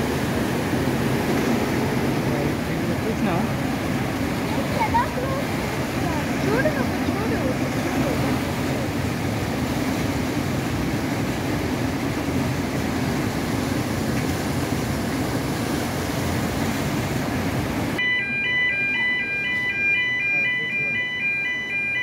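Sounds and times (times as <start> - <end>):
water rushing and churning: 0.0 - 22.0
two-tone warning alarm: 18.0 - 22.0.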